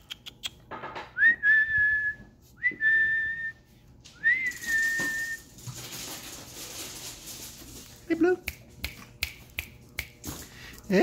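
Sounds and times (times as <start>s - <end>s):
person whistling: 1.2s - 3.6s, 4.2s - 5.4s.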